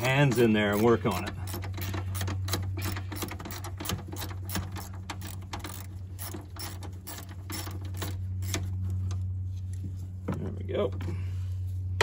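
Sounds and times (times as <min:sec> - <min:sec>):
ratchet clicking: 0:00.0 - 0:08.7
steady low hum: 0:00.0 - 0:12.0.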